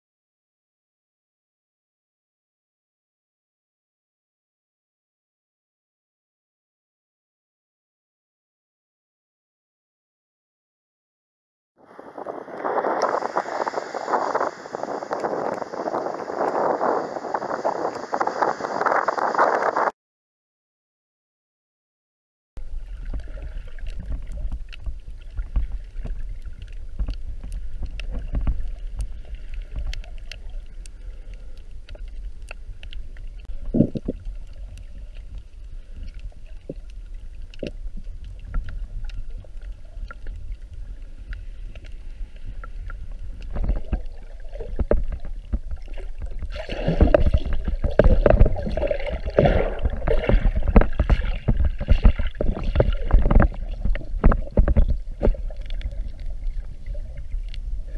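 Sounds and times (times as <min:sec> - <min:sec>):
muffled underwater rumble: 0:11.8 - 0:19.9, 0:22.6 - 0:57.9
water sloshing and splashing: 0:22.6 - 0:57.9.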